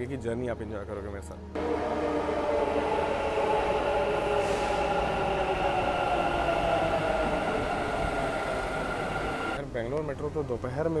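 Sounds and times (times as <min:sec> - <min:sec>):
train electric whine: 0:01.6 - 0:09.6
train running rumble: 0:01.6 - 0:09.6.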